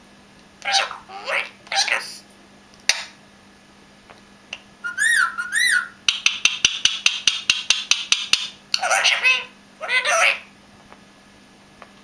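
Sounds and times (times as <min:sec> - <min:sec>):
parakeet whistling: 0:00.6 - 0:02.1, 0:04.8 - 0:06.0, 0:08.8 - 0:10.5
parakeet clicking: 0:06.0 - 0:08.9.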